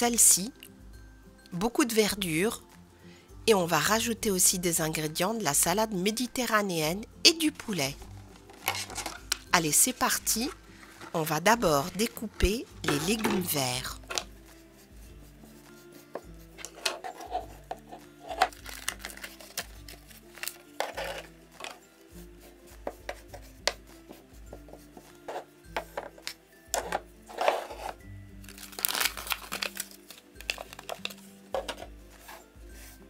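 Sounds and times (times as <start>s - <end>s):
background music: 0.0s - 33.0s
cloth rustling: 10.5s - 13.2s.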